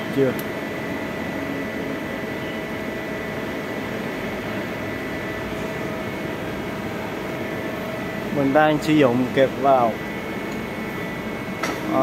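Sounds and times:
faint constant whine: 0:00.0 - 0:12.0
machine hum and hiss: 0:00.0 - 0:12.0.

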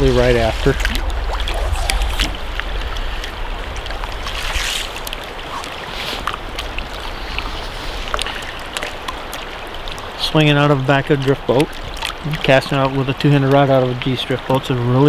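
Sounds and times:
hissing swishes: 0:00.0 - 0:08.1
wind on microphone: 0:00.0 - 0:09.1
river water lapping boat: 0:00.0 - 0:15.0.

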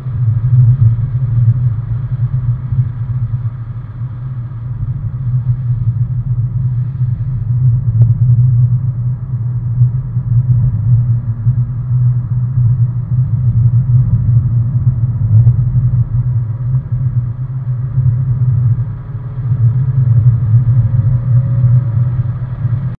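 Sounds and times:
rising engine whine: 0:00.0 - 0:23.0
car engine and road noise: 0:20.6 - 0:23.0.

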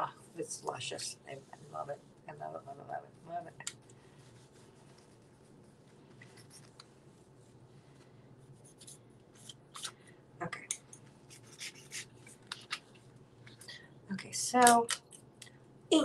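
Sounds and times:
paper and art supplies scratching: 0:11.3 - 0:12.9.

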